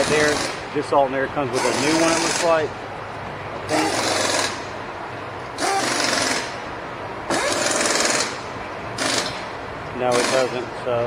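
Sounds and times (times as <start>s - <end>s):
pneumatic impact tool hammering: 0.0s - 0.7s, 1.5s - 2.7s, 3.7s - 4.7s, 5.6s - 6.6s, 7.3s - 9.5s, 10.1s - 10.6s.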